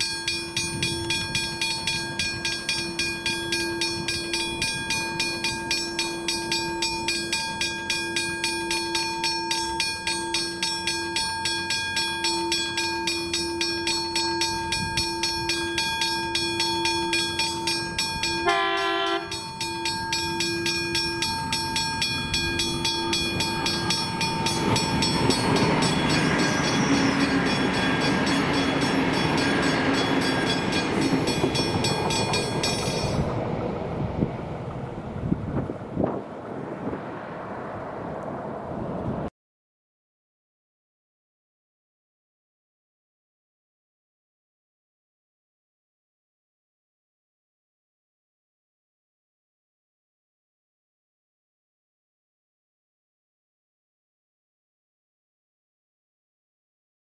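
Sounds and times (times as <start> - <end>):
level crossing bell ringing: 0.0 - 33.2
diesel train rumble: 0.0 - 39.3
train horn blast: 18.4 - 19.4.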